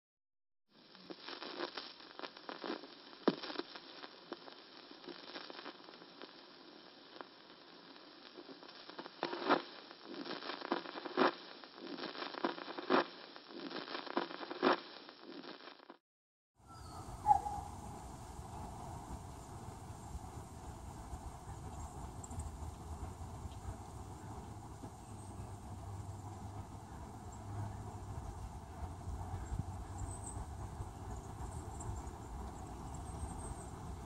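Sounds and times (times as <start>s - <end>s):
record surface crackle and hiss: 0.7s - 16.0s, 16.6s - 34.0s
pops: 1.0s - 6.0s, 8.3s - 16.0s.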